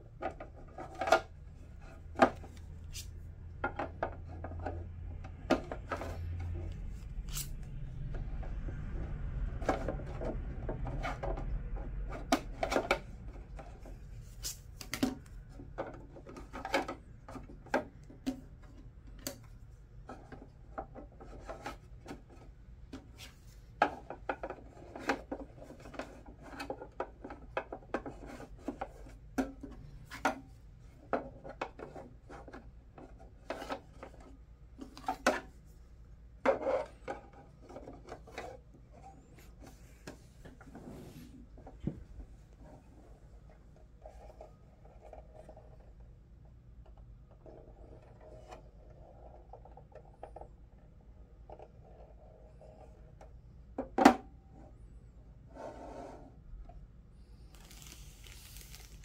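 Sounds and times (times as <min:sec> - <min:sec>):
plastic scraping on plastic: 0:00.0 - 0:35.7, 0:36.4 - 0:46.2, 0:57.4 - 0:59.0.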